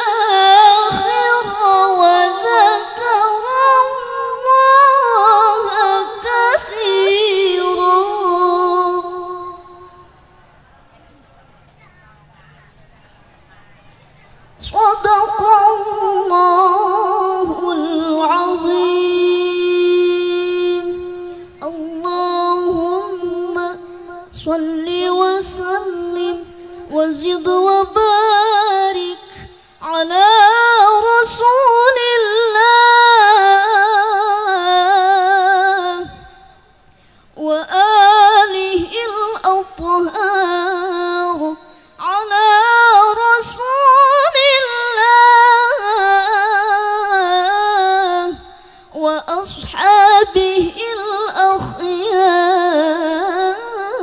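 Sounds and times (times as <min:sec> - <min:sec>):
woman chanting into a microphone: 0:00.0 - 0:11.0, 0:11.6 - 0:54.0.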